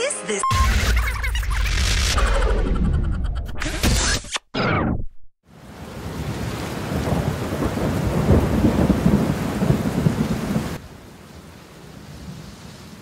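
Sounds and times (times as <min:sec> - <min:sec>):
steady rain: 0:05.5 - 0:13.0
rumble of thunder: 0:06.0 - 0:10.8.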